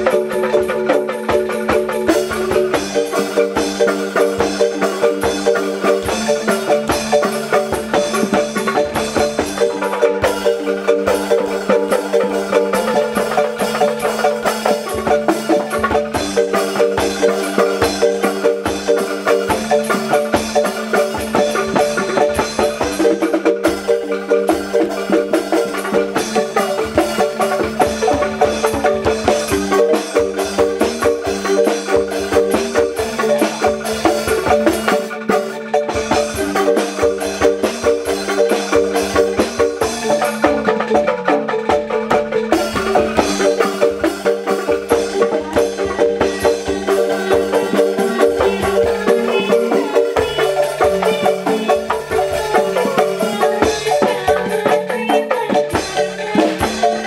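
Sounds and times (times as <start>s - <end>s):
rhythmic music with percussion beat: 0.0s - 57.0s.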